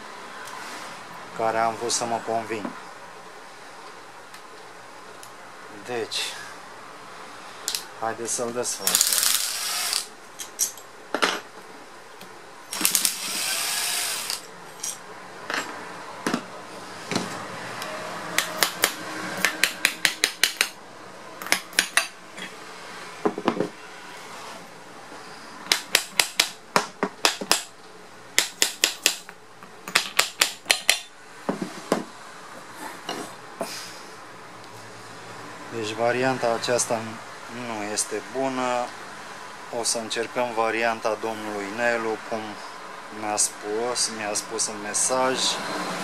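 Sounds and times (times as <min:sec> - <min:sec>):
cordless driver whirring: 0:08.9 - 0:10.1, 0:12.7 - 0:14.5.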